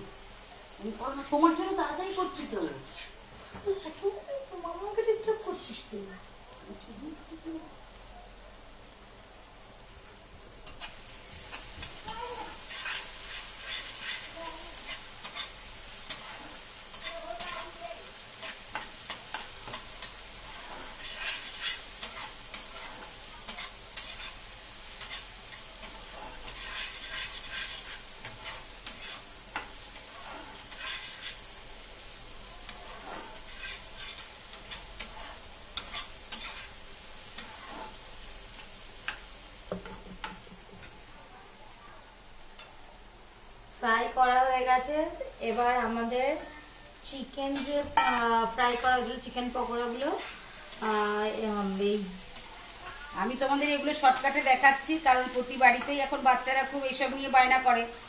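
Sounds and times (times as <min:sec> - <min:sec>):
food sizzling in oil: 0:00.0 - 0:58.0
metal spatula scraping a pan: 0:10.6 - 0:41.0, 0:47.4 - 0:57.8.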